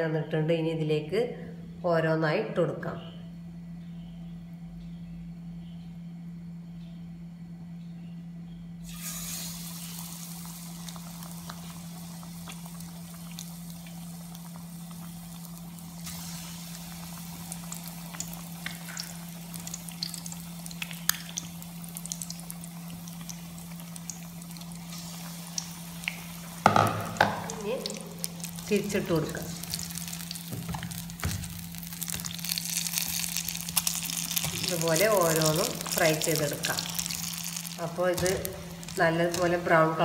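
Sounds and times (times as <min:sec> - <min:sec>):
steady low hum: 0:00.0 - 0:40.0
oil sizzling and crackling: 0:08.8 - 0:40.0.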